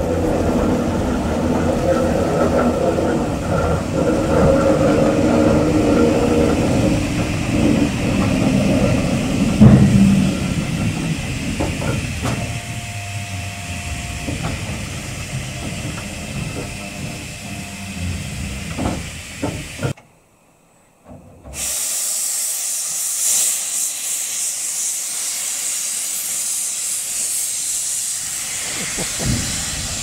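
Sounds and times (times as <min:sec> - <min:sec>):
steam hissing: 0:00.0 - 0:20.0, 0:21.5 - 0:30.0
train wheels rumbling on rails: 0:00.0 - 0:20.0, 0:21.0 - 0:30.0
loud metal clank: 0:08.2 - 0:20.0.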